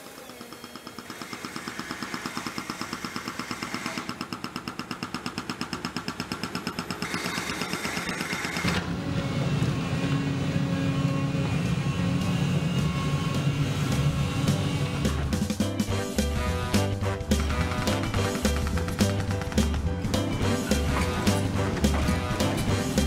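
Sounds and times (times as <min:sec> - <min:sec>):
hydraulic breaker hammering asphalt: 0:00.1 - 0:08.9, 0:17.2 - 0:23.0
excavator diesel engine droning: 0:08.5 - 0:15.4, 0:19.9 - 0:23.0.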